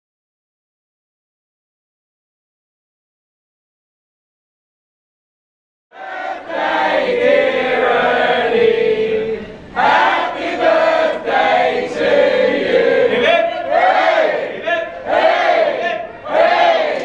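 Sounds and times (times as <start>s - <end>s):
group singing a party song: 5.9s - 17.0s.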